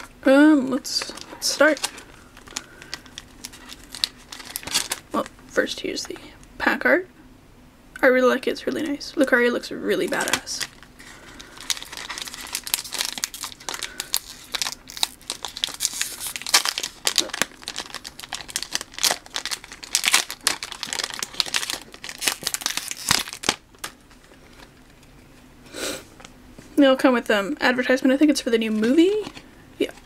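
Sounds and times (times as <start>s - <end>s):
foil wrapper tearing and crinkling: 0.9s - 5.3s, 10.0s - 24.0s.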